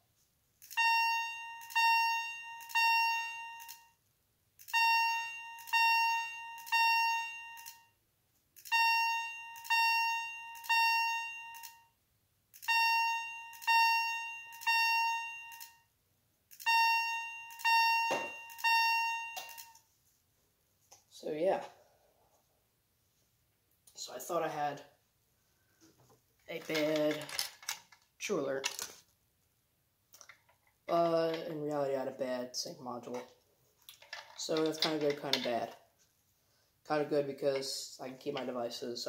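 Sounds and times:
fire alarm chime: 0.7s - 4.0s, 4.7s - 7.9s, 8.7s - 11.9s, 12.6s - 15.9s, 16.6s - 19.8s.

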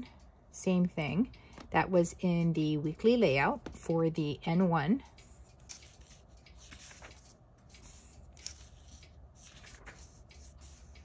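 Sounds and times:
paper pages turning: 5.2s - 11.0s
hand brushing paper: 5.6s - 11.0s.

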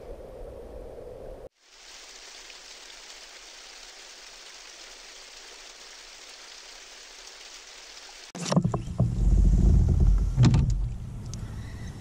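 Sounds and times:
steady rain-like hiss: 1.4s - 8.4s.

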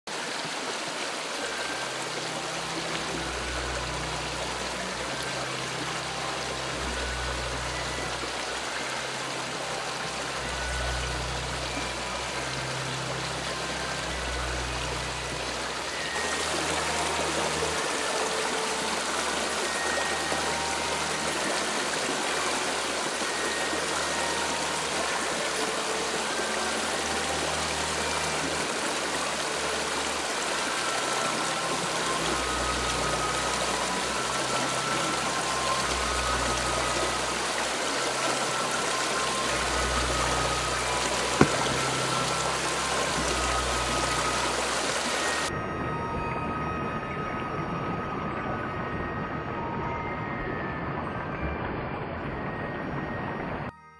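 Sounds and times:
river rushing over rocks: 0.1s - 46.0s.

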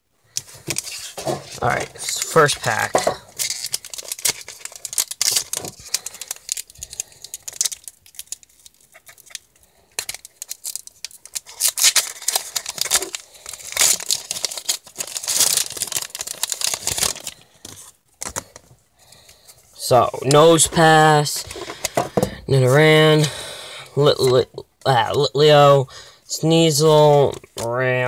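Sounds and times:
foil wrapper tearing and crinkling: 0.4s - 18.6s.

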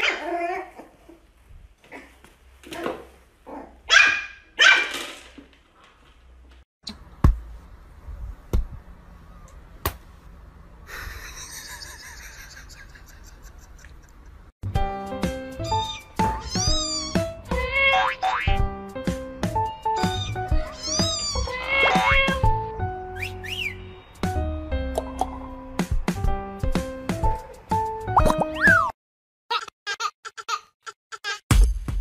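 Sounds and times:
small dog yapping: 0.0s - 0.8s, 2.7s - 5.0s, 20.0s - 22.4s.

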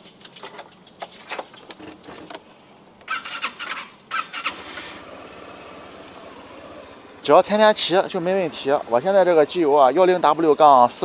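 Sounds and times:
electric starter cranking: 3.0s - 9.1s
scooter engine idling: 3.1s - 11.0s.

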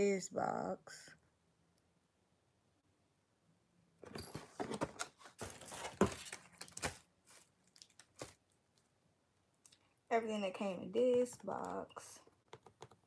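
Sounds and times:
cardboard box rustling: 4.1s - 7.5s.

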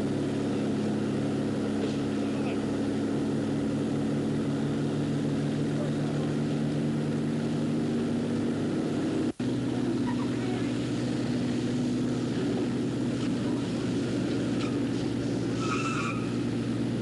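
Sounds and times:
engine droning: 0.0s - 17.0s.

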